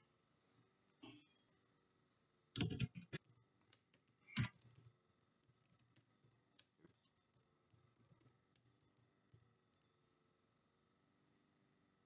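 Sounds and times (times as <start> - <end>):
typing on computer keyboard: 2.5 - 4.9.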